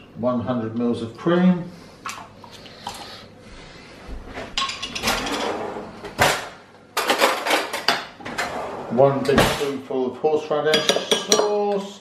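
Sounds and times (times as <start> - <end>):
cutlery clattering: 4.6 - 5.6, 6.2 - 8.5
drawer pulled open: 8.2 - 9.6.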